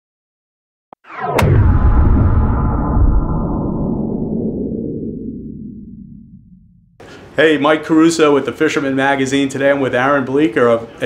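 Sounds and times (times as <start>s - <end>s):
cinematic title music: 1.0s - 7.0s
deep rumbling boom: 1.0s - 7.0s
sharp crack: 1.0s - 7.0s.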